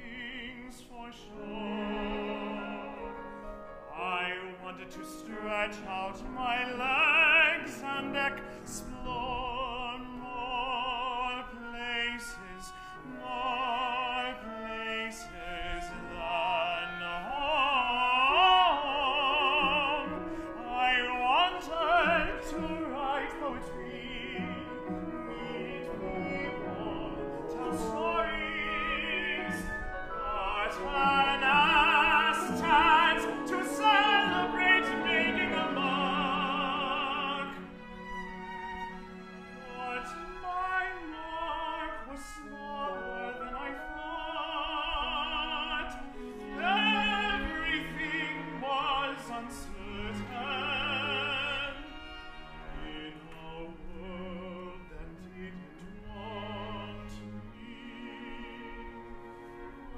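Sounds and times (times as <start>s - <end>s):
opera singing: 0.0s - 38.5s, 39.4s - 59.9s
instrumental accompaniment: 12.3s - 59.9s.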